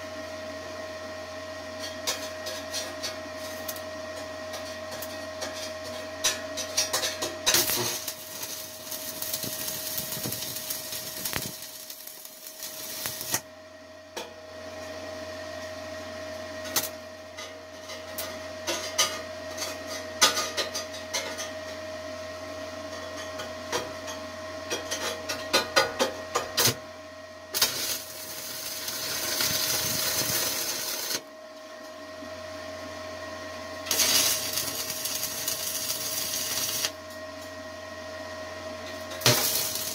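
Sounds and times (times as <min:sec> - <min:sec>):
steady hum: 0:06.6 - 0:14.0, 0:26.6 - 0:32.3, 0:32.9 - 0:37.7, 0:38.9 - 0:39.9
welding arc crackling and hissing: 0:07.0 - 0:13.4, 0:27.5 - 0:31.2, 0:33.9 - 0:37.0, 0:39.2 - 0:39.9.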